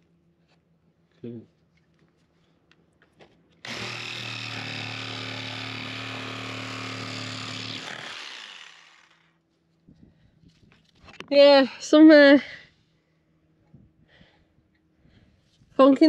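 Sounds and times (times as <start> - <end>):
electric power tool humming: 3.6 - 9.3.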